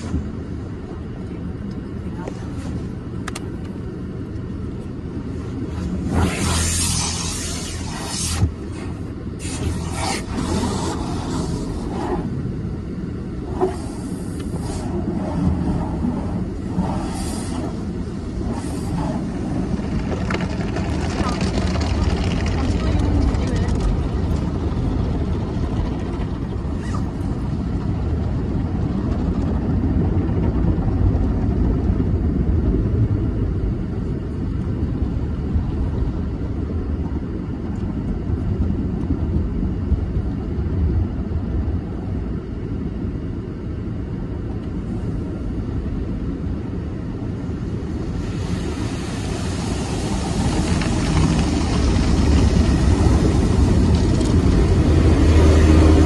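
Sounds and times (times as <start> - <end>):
car wash brushes slapping: 5.6 - 12.3, 13.5 - 23.6, 48.1 - 56.0
loud hiss: 16.8 - 17.9, 48.1 - 51.7.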